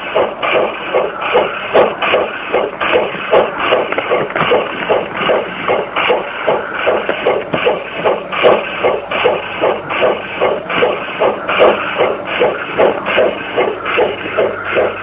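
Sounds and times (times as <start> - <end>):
model steam locomotive chuffing: 0.0 - 15.0.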